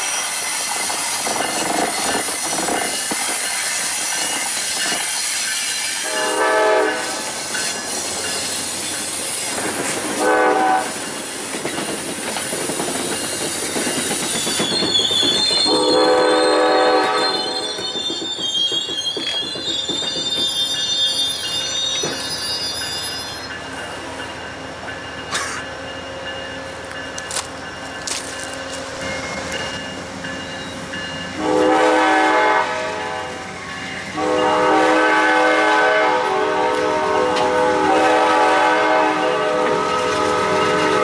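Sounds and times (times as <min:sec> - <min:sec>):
train cars rolling past: 0:00.0 - 0:41.0
locomotive horn blasts: 0:06.0 - 0:07.2, 0:10.2 - 0:11.0, 0:15.6 - 0:17.7, 0:31.4 - 0:33.4, 0:34.2 - 0:41.0
wheels squealing: 0:12.8 - 0:23.6.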